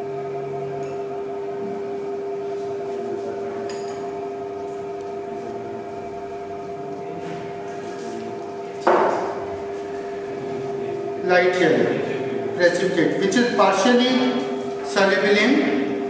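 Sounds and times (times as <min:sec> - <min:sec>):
steady multi-tone hum: 0:00.0 - 0:16.0
sharp knock: 0:08.9 - 0:09.4.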